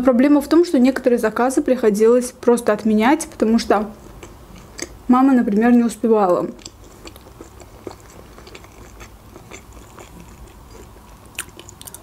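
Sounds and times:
chewing soft sweets: 3.9 - 12.0.

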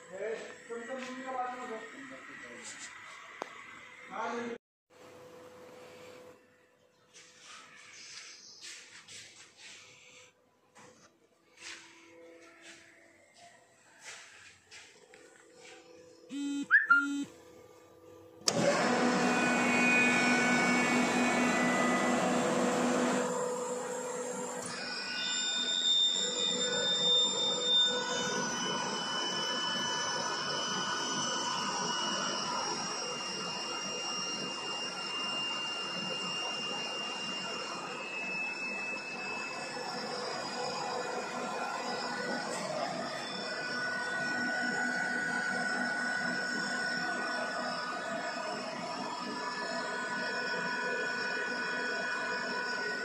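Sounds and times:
air compressor whirring hum: 0.0 - 53.0
short electronic beeps: 16.3 - 17.3.

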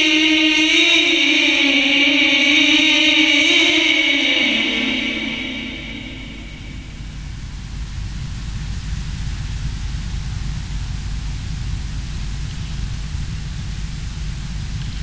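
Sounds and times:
steady hiss: 0.0 - 15.0
low flickering rumble: 3.2 - 15.0.

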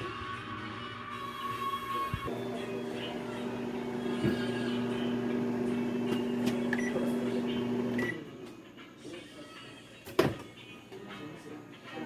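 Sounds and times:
microwave oven humming: 2.3 - 8.2.

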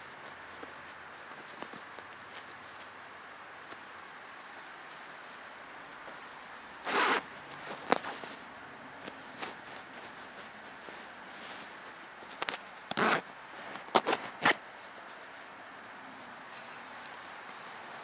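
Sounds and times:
fabric rubbing: 5.2 - 15.6
zipper pull clicks: 6.8 - 8.1, 12.3 - 14.6
zipper rasp: 6.8 - 8.3, 12.4 - 14.6.

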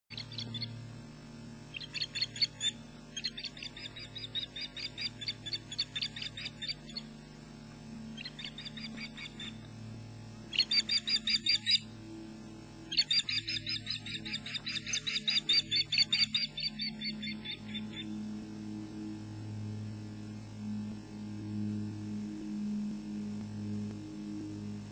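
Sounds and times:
osprey alarm calls: 0.1 - 0.8, 1.7 - 7.1, 8.2 - 9.7, 10.5 - 11.9, 12.9 - 18.2
steady low hum: 0.1 - 24.9.

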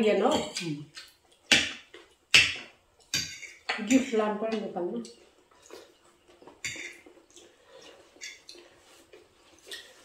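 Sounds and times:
cutlery clinking on plates: 2.4 - 4.0, 6.5 - 7.2, 8.1 - 8.7.

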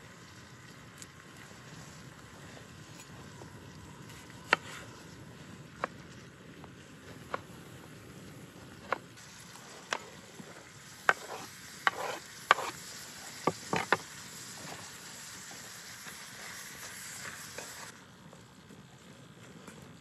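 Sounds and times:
food sizzling in a pot: 0.0 - 5.5, 8.8 - 18.0
utensil scraping against a pot: 9.5 - 14.9.

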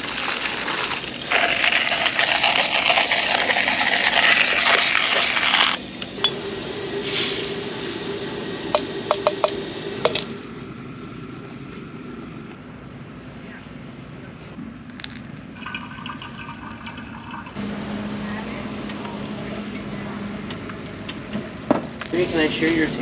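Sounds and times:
coffee grinder grinding: 0.0 - 5.8
low hum: 2.8 - 16.2.

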